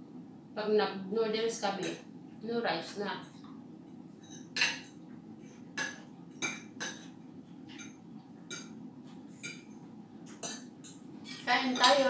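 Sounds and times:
low background hum: 0.0 - 12.0
cutlery clinking on plate: 4.2 - 5.0.

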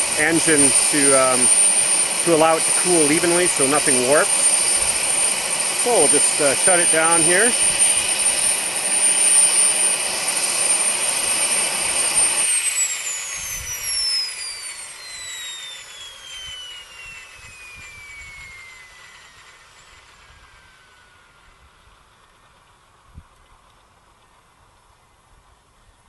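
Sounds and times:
gas turbine engine whine: 0.0 - 26.0.

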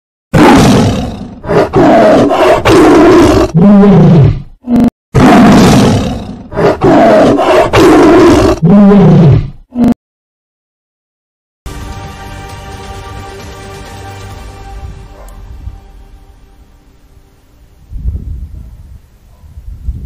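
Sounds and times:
big cat roaring and snarling: 0.4 - 10.0.

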